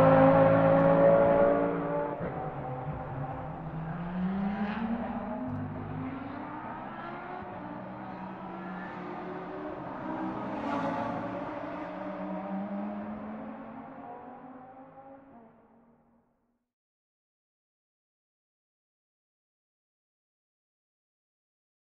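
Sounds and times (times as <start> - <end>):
race car engines: 0.0 - 16.2.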